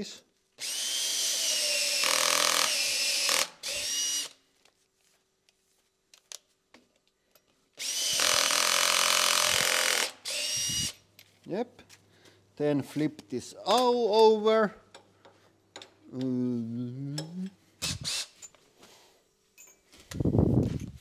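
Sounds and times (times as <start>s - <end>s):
power drill whining: 0.6s - 4.4s, 7.8s - 11.0s, 17.8s - 18.4s.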